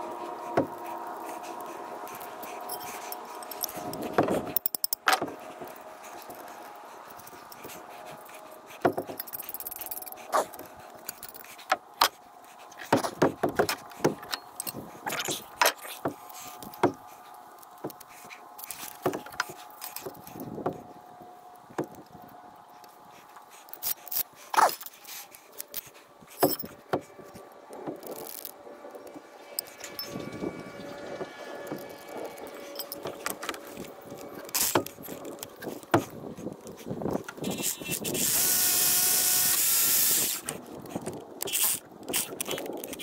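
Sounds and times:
steady background hum: 0.0s - 43.0s
knocks taps and clinks: 26.4s - 27.0s.

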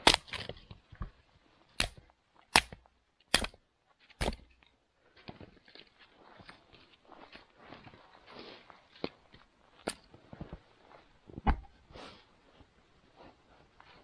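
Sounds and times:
sharp wood cracks: 0.0s - 0.9s, 1.8s - 4.7s.

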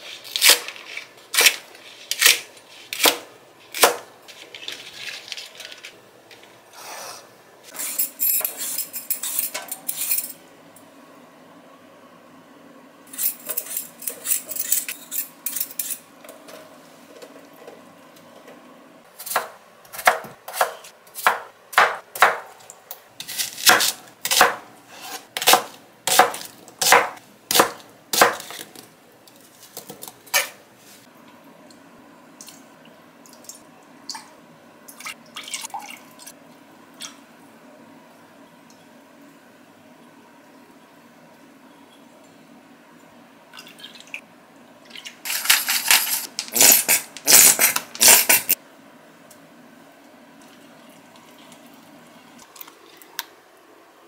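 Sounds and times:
knife chopping on cutting board: 19.3s - 22.5s, 23.3s - 28.7s.

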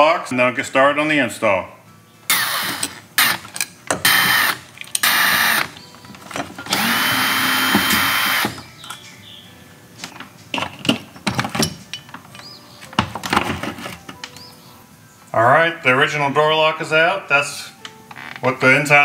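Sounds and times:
cordless drill whining: 2.3s - 3.4s, 4.0s - 5.8s, 6.7s - 8.6s.

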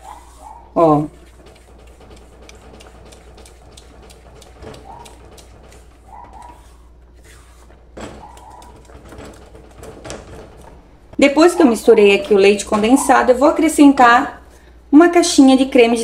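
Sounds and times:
spatula scraping a pan: 0.0s - 10.8s.

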